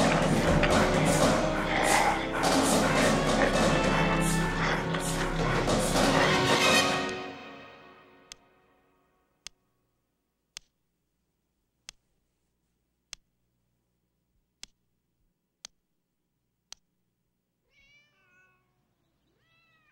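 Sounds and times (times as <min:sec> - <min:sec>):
music: 0:00.0 - 0:09.4
cat meowing: 0:17.6 - 0:19.9.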